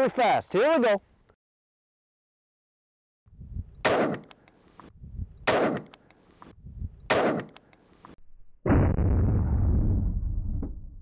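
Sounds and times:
rifle shots with echo: 0:03.8 - 0:04.3, 0:05.5 - 0:05.9, 0:07.1 - 0:07.6.

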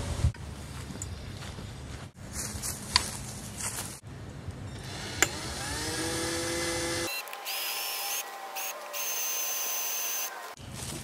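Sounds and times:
electric drill whining: 0:04.8 - 0:10.6.

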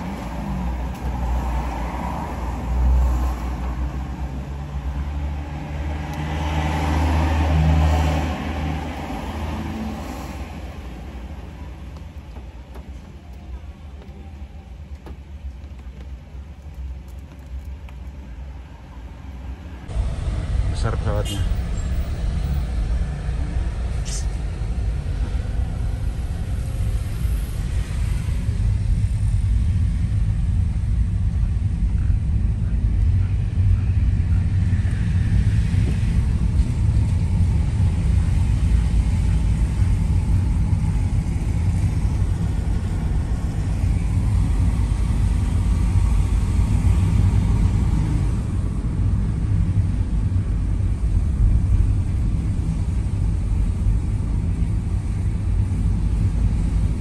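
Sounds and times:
tyres hissing on wet road: 0:00.0 - 0:30.4
car cabin engine and road rumble: 0:00.0 - 0:57.0.

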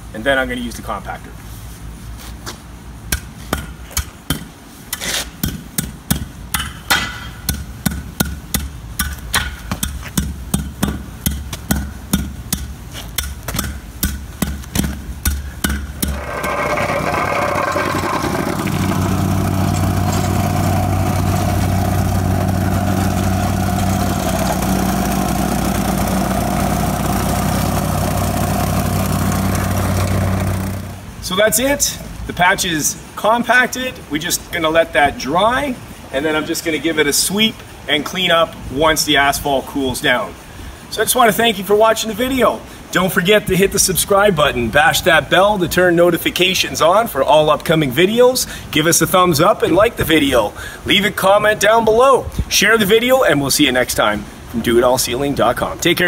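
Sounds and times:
hand tamper thumping asphalt: 0:03.1 - 0:31.0
plate compactor engine: 0:16.0 - 0:31.2.

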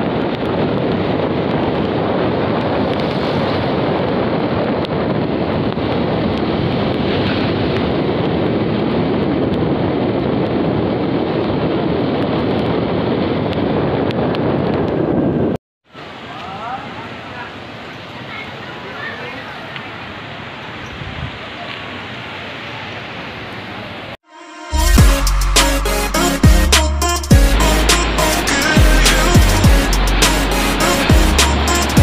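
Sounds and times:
wind buffeting microphone: 0:00.0 - 0:15.6, 0:20.8 - 0:21.6, 0:27.3 - 0:32.0
road noise: 0:16.0 - 0:32.0.

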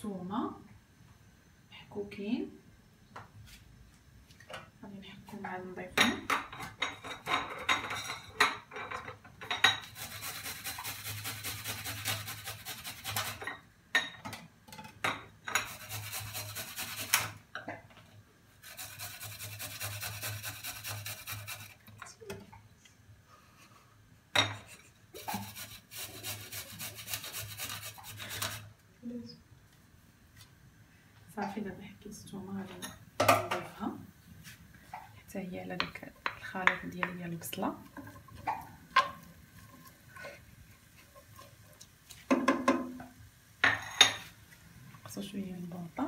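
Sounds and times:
garlic grated on metal grater: 0:09.8 - 0:13.5, 0:15.5 - 0:17.4, 0:18.6 - 0:21.8, 0:25.2 - 0:28.6.

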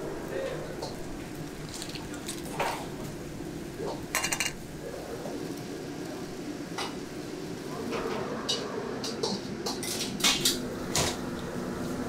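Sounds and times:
steady background hiss: 0:00.0 - 0:12.0
clams clattering against steel bowl: 0:04.1 - 0:04.6.

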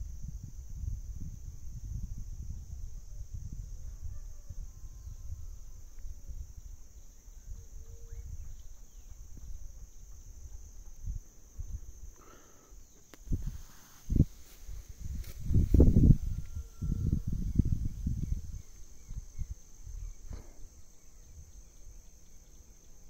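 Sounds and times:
high insect drone: 0:00.0 - 0:23.0
faint bird chirps: 0:06.6 - 0:10.6.

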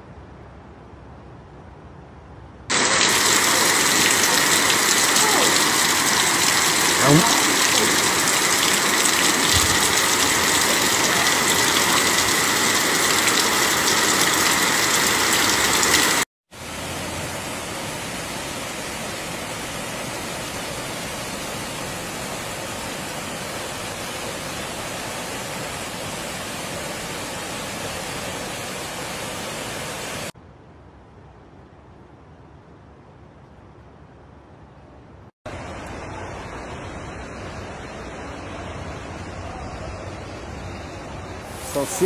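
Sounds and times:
floodwater gushing from wall: 0:02.7 - 0:30.3, 0:41.4 - 0:42.0
water cascading down stairway: 0:02.7 - 0:30.4, 0:41.4 - 0:42.0.

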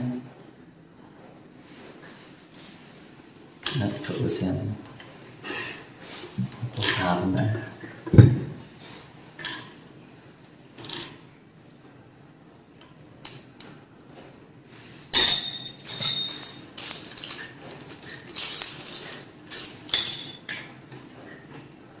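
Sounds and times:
small metal parts clicking: 0:15.2 - 0:20.6.

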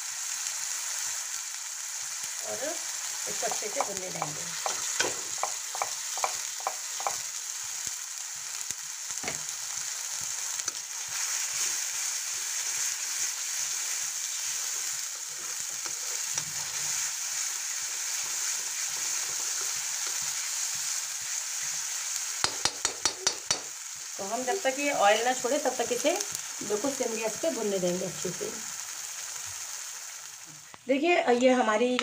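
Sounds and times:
paste sizzling in hot oil: 0:00.0 - 0:31.0
spatula scraping pan: 0:03.3 - 0:07.2
utensils knocking on pan: 0:03.3 - 0:07.2, 0:22.4 - 0:23.7.

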